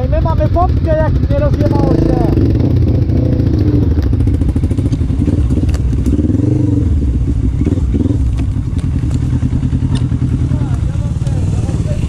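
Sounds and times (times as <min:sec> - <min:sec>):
quad bike engine running: 0:00.0 - 0:12.0
knocks and clatter over bumps: 0:07.2 - 0:12.0.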